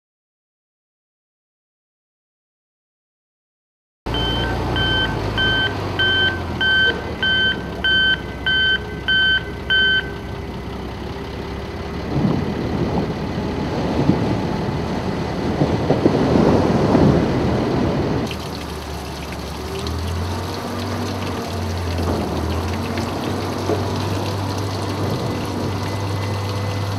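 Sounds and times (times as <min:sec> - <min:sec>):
reversing alarm beeping: 0:04.1 - 0:10.3
machine engine: 0:17.4 - 0:26.9.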